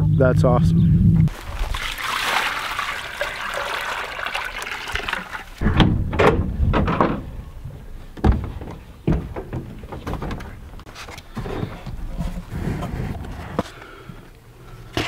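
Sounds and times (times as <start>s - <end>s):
low rumble: 0.0s - 1.3s
thuds on wooden boards: 5.6s - 7.4s, 8.1s - 12.0s.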